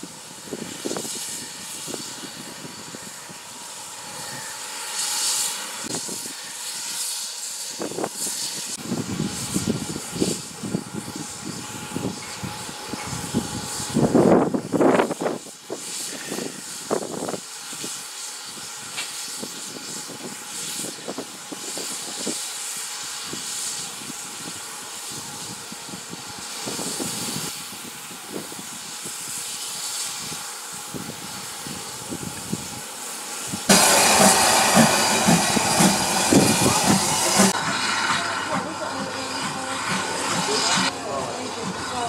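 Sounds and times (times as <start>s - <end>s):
steam locomotive hissing: 0.0s - 42.0s
train wheels knocking: 33.7s - 37.5s.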